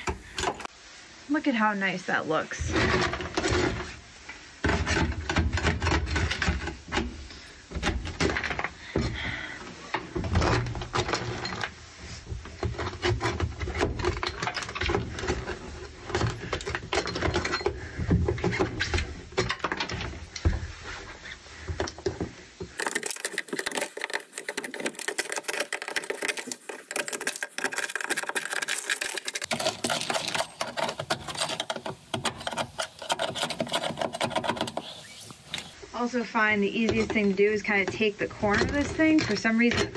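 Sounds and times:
pellets rattling on metal: 0:22.7 - 0:34.6
scraper scratching on metal: 0:29.4 - 0:35.8.

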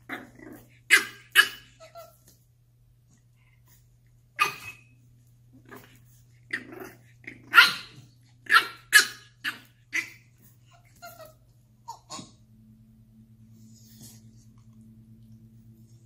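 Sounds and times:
puppy barking and growling: 0:00.0 - 0:02.3, 0:04.3 - 0:04.9, 0:05.5 - 0:12.4.

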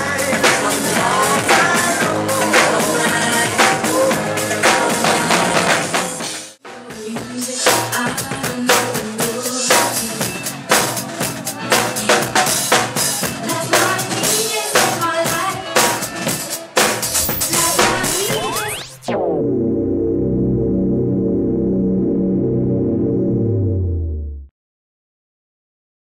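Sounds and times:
drum kit played live: 0:00.0 - 0:19.1
dance music: 0:16.9 - 0:19.4.

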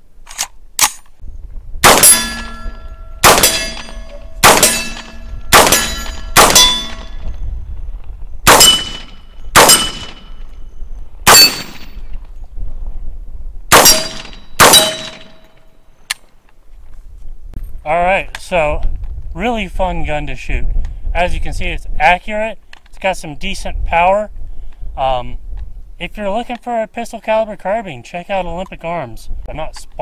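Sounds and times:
rifle shots: 0:01.8 - 0:07.2, 0:08.4 - 0:10.4, 0:11.2 - 0:12.0, 0:13.7 - 0:15.4
steel target ringing: 0:01.8 - 0:07.2, 0:08.5 - 0:10.5, 0:11.3 - 0:12.0, 0:13.7 - 0:15.7.

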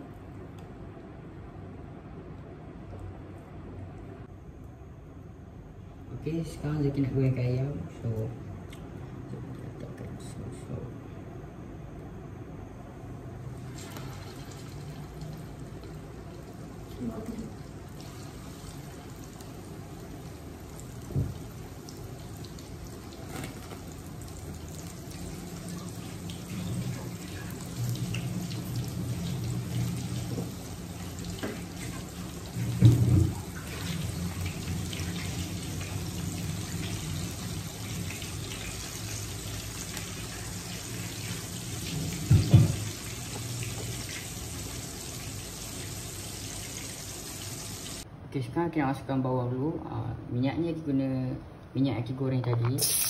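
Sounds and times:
chicken frying in hot oil: 0:13.5 - 0:48.0.

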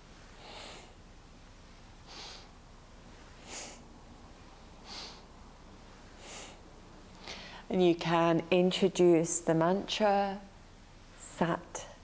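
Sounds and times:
woman breathing rhythmically: 0:00.2 - 0:01.1, 0:02.0 - 0:07.7.

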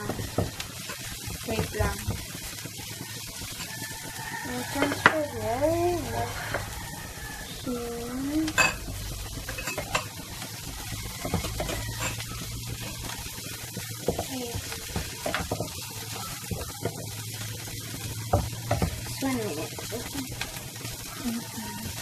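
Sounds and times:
vegetables sizzling in a frying pan: 0:00.0 - 0:22.0
wooden spatula scraping a pan: 0:03.0 - 0:07.7.

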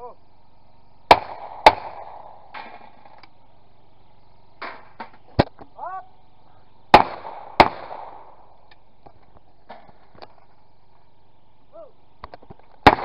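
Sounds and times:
shotgun shots: 0:01.1 - 0:03.0, 0:06.9 - 0:08.5
person calling: 0:05.7 - 0:06.7, 0:11.7 - 0:12.0.

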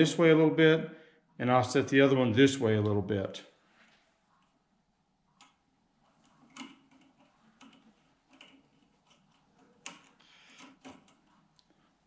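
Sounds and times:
faint metal clicks and scrapes: 0:05.3 - 0:11.9.

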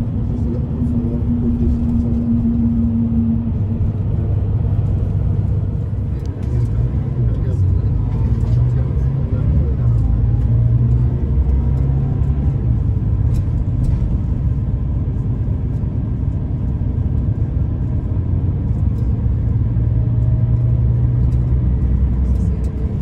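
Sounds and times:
coach engine and road noise: 0:00.0 - 0:23.0.

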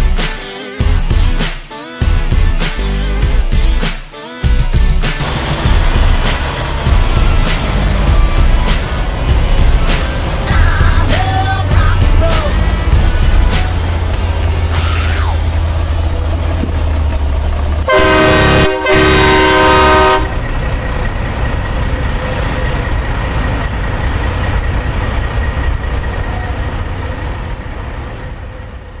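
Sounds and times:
low drone: 0:05.2 - 0:29.0
truck air horn blasts: 0:17.8 - 0:20.4.

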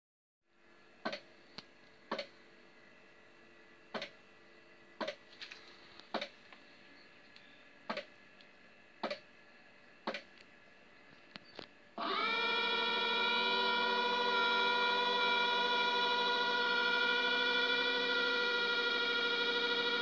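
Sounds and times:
faint electronic hum: 0:00.5 - 0:20.0.

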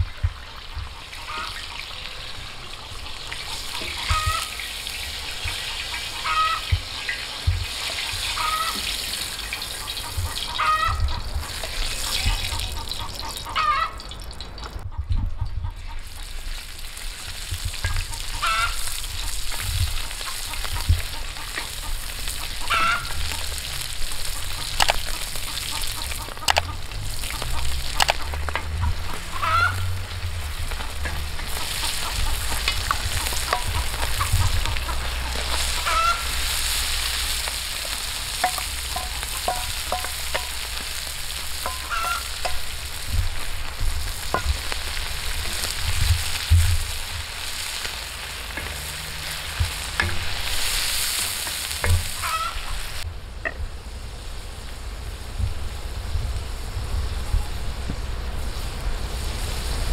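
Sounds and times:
meat and onion sizzling in a pan: 0:00.0 - 0:14.8, 0:16.0 - 0:53.1, 0:53.8 - 0:59.9
fowl squawking: 0:00.4 - 0:14.0, 0:17.9 - 0:30.1, 0:31.4 - 0:53.0
wooden spatula tapping pan: 0:32.4 - 0:35.7, 0:37.4 - 0:42.8.

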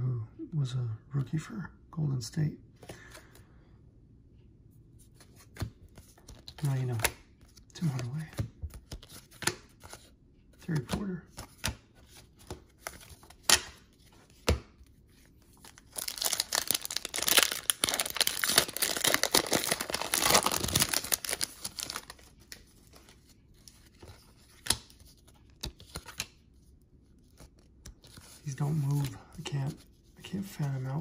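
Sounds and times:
wrapper tearing and crinkling: 0:15.7 - 0:22.3.

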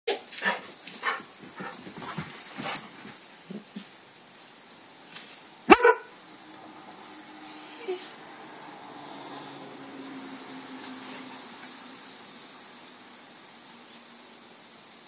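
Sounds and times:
soft scattered sounds: 0:00.2 - 0:07.3
dog barking: 0:05.7 - 0:06.1.

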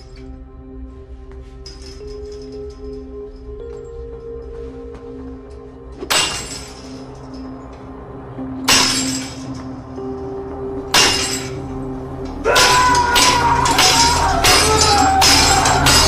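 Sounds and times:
dramatic music with held tones: 0:00.0 - 0:16.0
metallic crashes on chain-link gate: 0:06.1 - 0:07.0, 0:08.7 - 0:09.6, 0:10.9 - 0:11.6, 0:12.5 - 0:16.0.

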